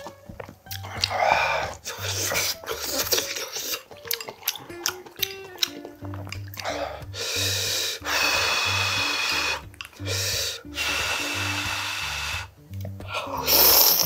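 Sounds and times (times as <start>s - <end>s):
background music with bass line: 0.0s - 14.0s
loud sucking slurps: 0.8s - 3.9s, 6.6s - 14.0s.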